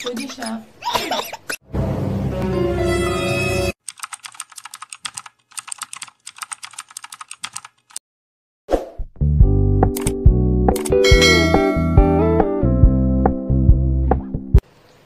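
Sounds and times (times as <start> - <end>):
music: 1.8 - 3.8, 9.2 - 14.6
keyboard typing clicks: 3.9 - 8.0, 10.0 - 10.2.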